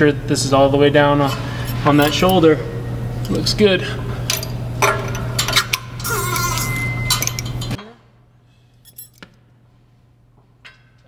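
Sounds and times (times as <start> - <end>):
metal clinking and scraping: 1.2 - 2.4, 4.2 - 7.8.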